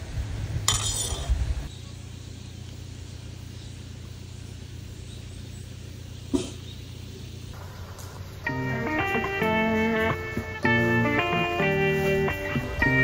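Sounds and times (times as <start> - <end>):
steady low hum: 0.0 - 13.0
spoon clinking ceramic bowl: 0.7 - 1.3.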